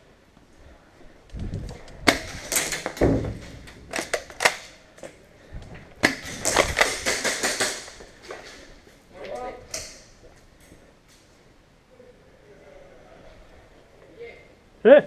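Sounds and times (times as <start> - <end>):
airsoft gun shots: 6.0 - 8.0.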